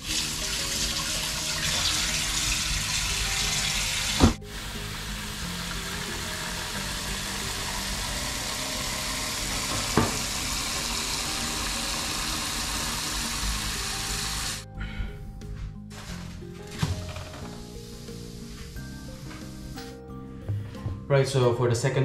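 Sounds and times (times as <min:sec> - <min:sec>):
tap water pouring into metal pot: 0:00.0 - 0:14.5.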